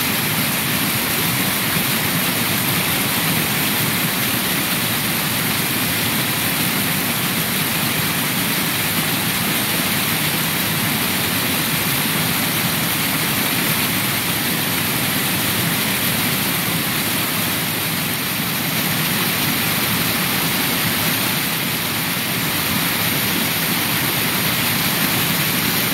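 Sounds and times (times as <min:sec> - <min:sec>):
waterfall pouring into pool: 0:00.0 - 0:25.9.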